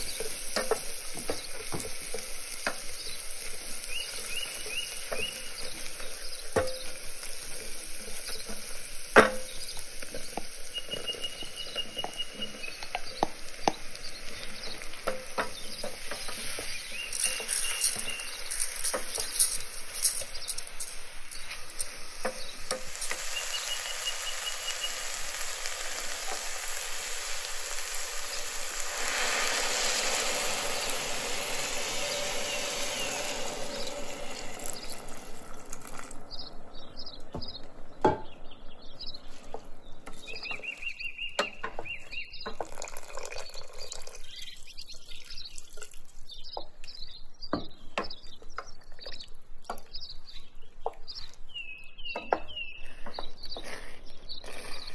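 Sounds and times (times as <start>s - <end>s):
rice sizzling in a pot: 0.0s - 36.4s
birds chirping: 0.0s - 54.9s.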